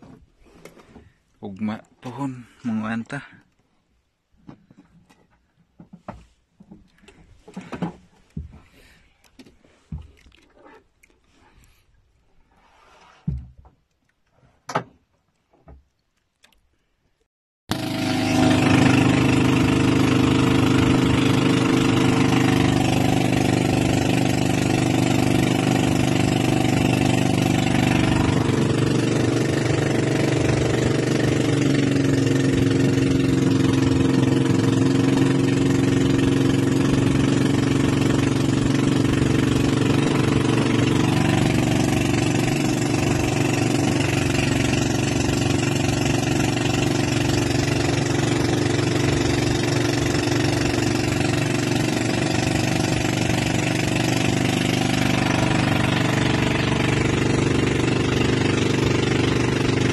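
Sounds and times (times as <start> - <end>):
small boat engine running: 17.7 - 59.9.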